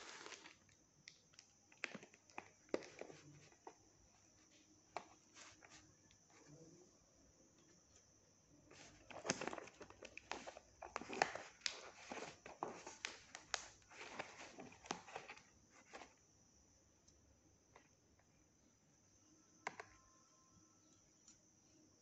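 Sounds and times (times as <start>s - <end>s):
packing tape and cardboard crinkling: 0.0s - 3.7s, 8.7s - 16.1s.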